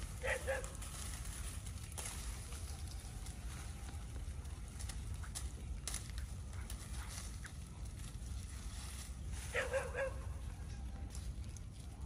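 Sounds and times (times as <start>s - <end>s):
steady low rumble: 0.0s - 12.0s
dog yipping: 0.2s - 0.8s, 9.5s - 10.3s.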